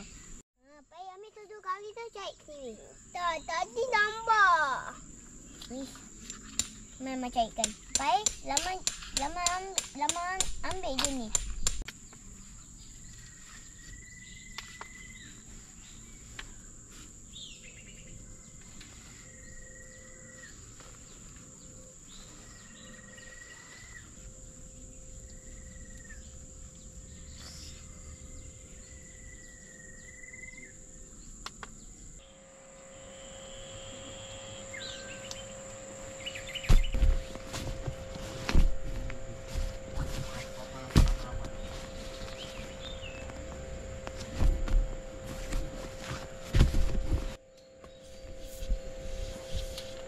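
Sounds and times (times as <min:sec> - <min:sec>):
low steady hum: 0:01.7 - 0:50.0
high-pitched insect drone: 0:12.1 - 0:50.0.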